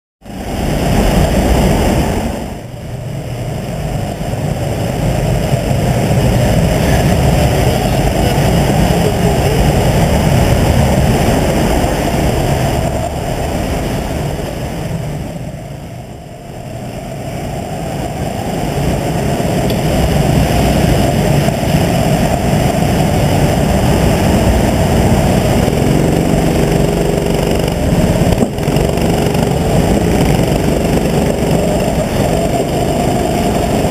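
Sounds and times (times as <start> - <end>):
go-kart engine running: 0.4 - 33.9.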